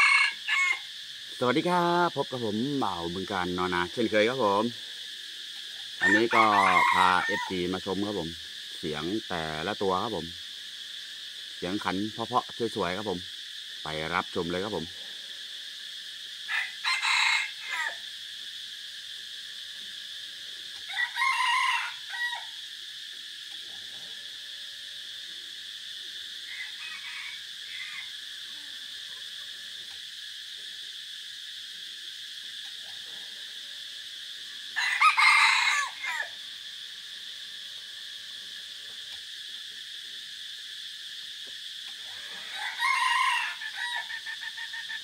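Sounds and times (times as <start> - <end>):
roosters crowing: 0.0 - 10.3, 14.4 - 18.6, 19.6 - 22.8, 26.2 - 29.7, 34.1 - 38.1, 41.9 - 45.0
insect drone: 0.0 - 45.0.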